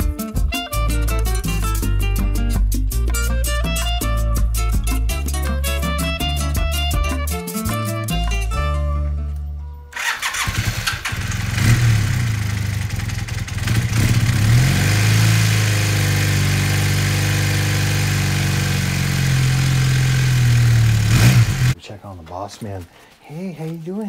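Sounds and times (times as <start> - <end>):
motorcycle engine starting and idling: 9.9 - 21.8.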